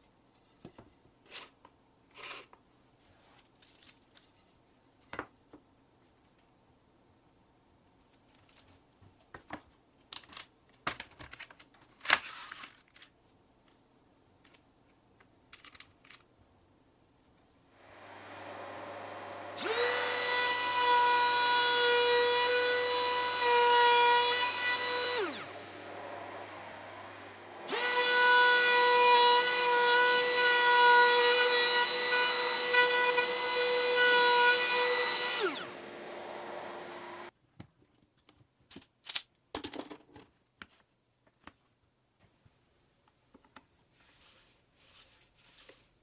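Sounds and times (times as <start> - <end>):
faint steady hum: 17.8 - 20.2, 25.1 - 28.7
router high whine: 17.8 - 37.3.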